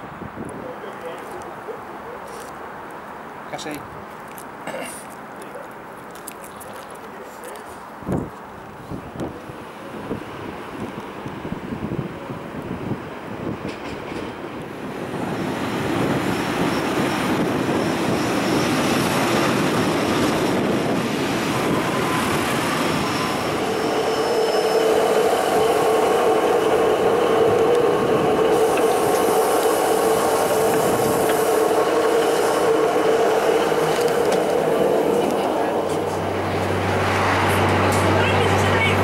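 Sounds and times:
train carriages rumbling: 0:07.0 - 0:39.0
wheels and brakes squealing: 0:16.3 - 0:20.3, 0:21.6 - 0:27.2.

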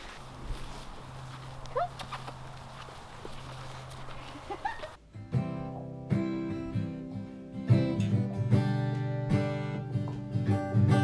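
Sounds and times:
strummed acoustic guitar: 0:05.0 - 0:11.0.

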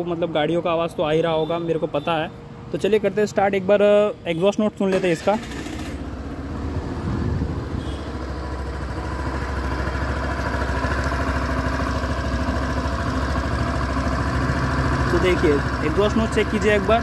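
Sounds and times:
scooter engine idling: 0:04.9 - 0:17.0.

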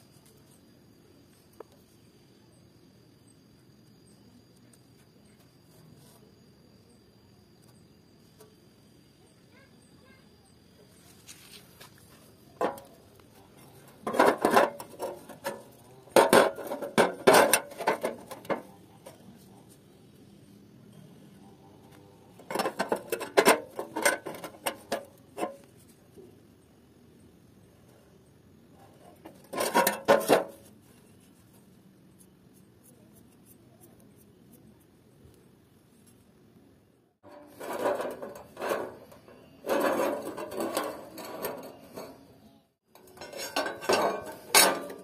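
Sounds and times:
metal scraping and knocking: 0:12.5 - 0:19.2, 0:22.4 - 0:25.7, 0:28.9 - 0:30.7, 0:37.2 - 0:45.0
steel clattering on work table: 0:13.9 - 0:18.7, 0:22.4 - 0:25.6, 0:29.2 - 0:30.6, 0:37.2 - 0:42.3, 0:42.9 - 0:45.0.

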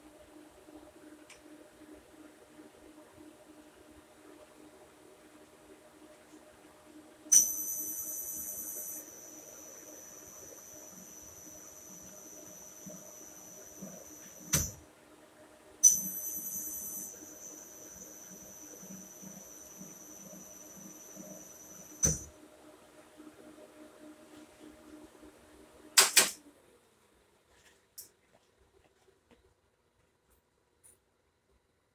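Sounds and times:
high-pitched electrical whine: 0:07.3 - 0:14.8, 0:15.8 - 0:22.3.

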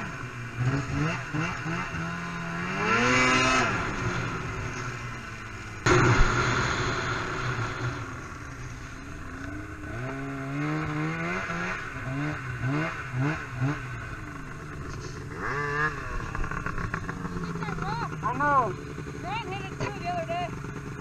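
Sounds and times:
snowmobile engine revving: 0:00.0 - 0:21.0
snowmobile hitting rock bang: 0:05.8 - 0:08.6.

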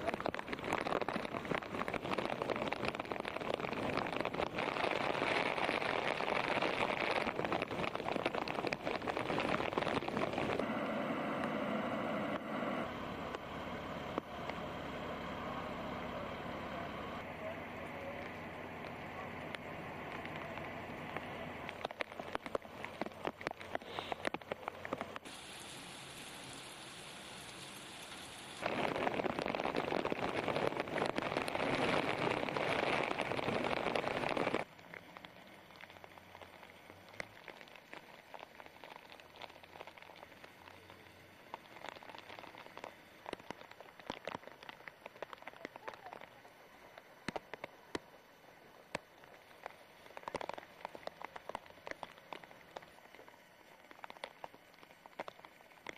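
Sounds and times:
scattered taps and clicks: 0:00.0 - 0:10.7, 0:18.0 - 0:25.4, 0:41.5 - 0:48.2, 0:48.8 - 0:55.9
heavy rain and hail on pavement: 0:00.0 - 0:12.4, 0:18.0 - 0:48.2, 0:48.9 - 0:55.9.

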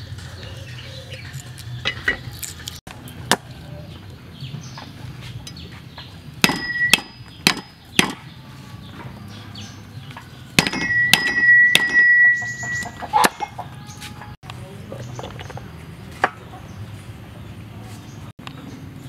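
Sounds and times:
steel blade ringing: 0:06.4 - 0:07.7, 0:10.6 - 0:13.0
cleaver chopping on block: 0:06.4 - 0:08.2, 0:10.6 - 0:12.1.

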